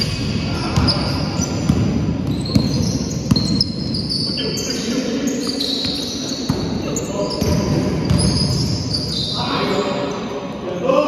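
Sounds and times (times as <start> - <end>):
basketball bouncing: 0.0 - 3.7, 7.4 - 8.5
trainers squeaking on floor: 2.3 - 9.9.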